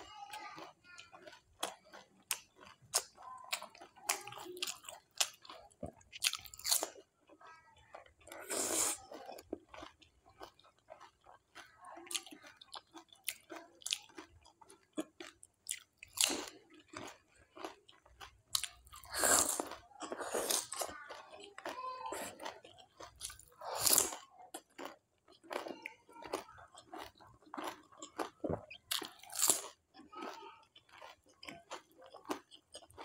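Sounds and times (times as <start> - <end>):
crunchy food chewing: 0.0 - 33.0
wet mouth sounds: 8.0 - 17.7.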